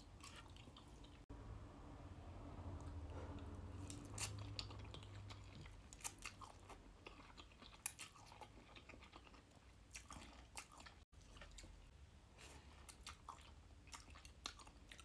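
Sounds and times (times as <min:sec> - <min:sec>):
low hum: 0:01.3 - 0:05.6.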